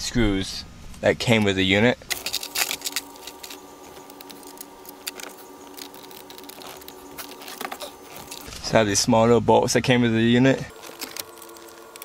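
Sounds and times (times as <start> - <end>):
faint steady hum: 0.0 - 12.0
screwdriver turning small screws: 10.7 - 12.0.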